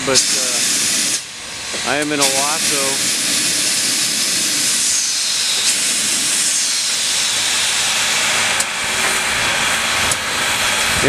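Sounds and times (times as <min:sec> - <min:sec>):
steam locomotive venting steam: 0:00.0 - 0:11.0.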